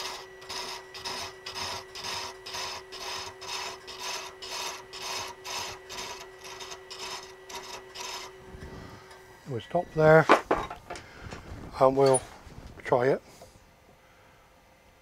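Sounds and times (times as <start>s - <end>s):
thread chaser scraping wood: 0.0s - 13.6s
lathe humming: 0.0s - 14.0s.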